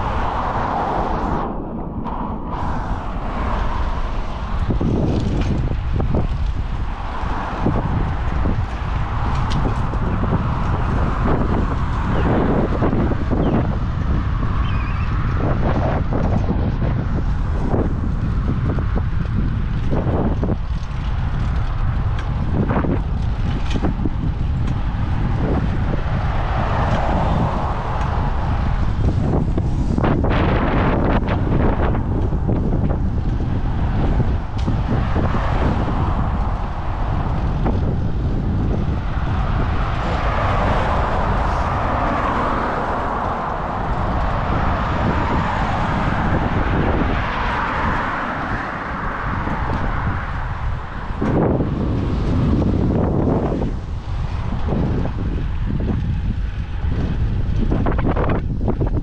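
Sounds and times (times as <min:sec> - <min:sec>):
road noise: 0:00.0 - 0:59.0
wind buffeting microphone: 0:00.0 - 0:59.0.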